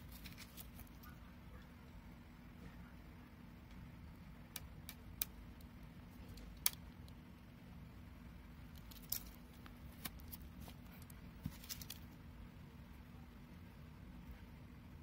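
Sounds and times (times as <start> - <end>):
steady low hum: 0.0 - 15.0
clicks and crackles of shrink-wrap: 8.7 - 12.0.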